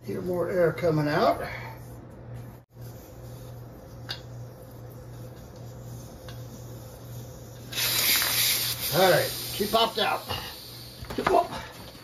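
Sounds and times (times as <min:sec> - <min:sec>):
air hissing from tyre: 0:05.7 - 0:12.0.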